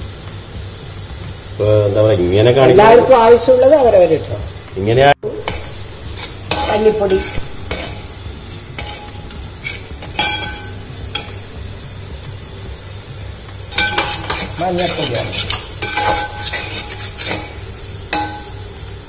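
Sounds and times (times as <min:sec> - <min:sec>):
onions frying with steady sizzle: 0:00.0 - 0:19.0
spatula scraping metal pot: 0:05.4 - 0:08.1, 0:08.7 - 0:11.3, 0:13.7 - 0:18.4.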